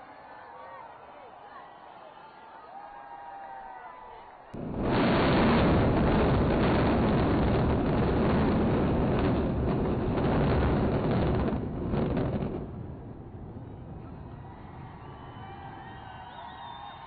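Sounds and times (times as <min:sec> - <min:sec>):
deep rumble of buildings collapsing: 0:04.6 - 0:17.0.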